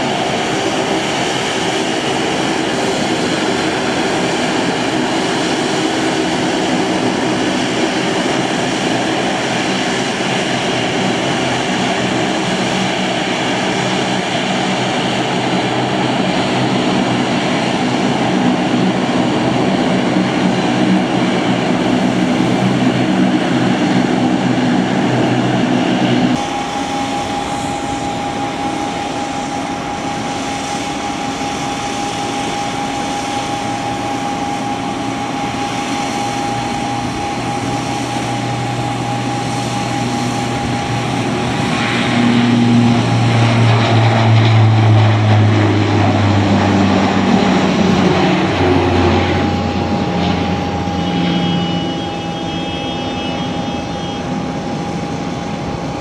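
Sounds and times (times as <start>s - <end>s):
turboprop airliner propeller drone: 0.0s - 56.0s.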